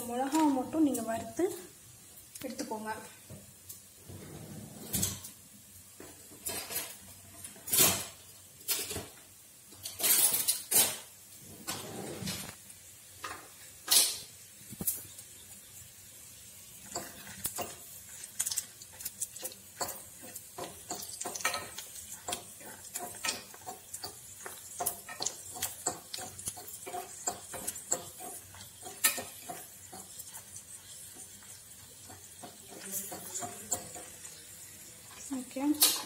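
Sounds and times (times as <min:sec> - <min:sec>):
chillies sizzling in oil: 0:00.0 - 0:11.8, 0:12.4 - 0:36.0
fork scraping a pan: 0:09.8 - 0:11.0, 0:16.7 - 0:36.0.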